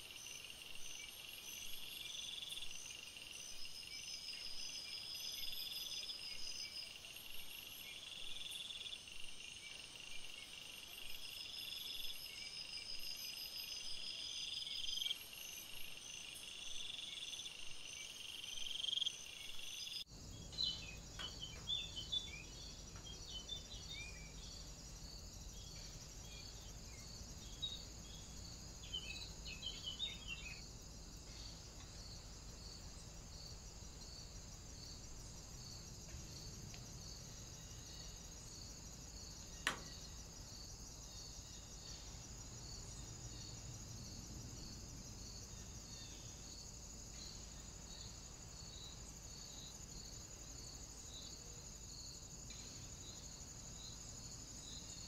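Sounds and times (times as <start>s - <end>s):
small birds chirping: 0.0s - 33.5s
insects chirring: 0.0s - 55.0s.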